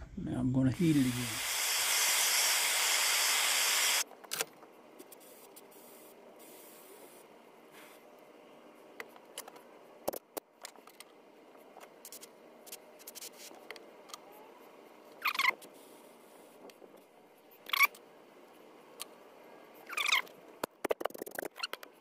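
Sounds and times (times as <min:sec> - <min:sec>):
propane torch hissing: 0:00.7 - 0:04.0.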